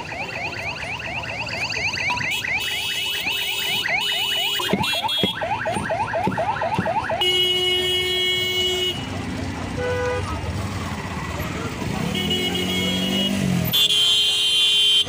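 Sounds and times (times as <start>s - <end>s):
electronic siren whooping: 0.0s - 7.2s.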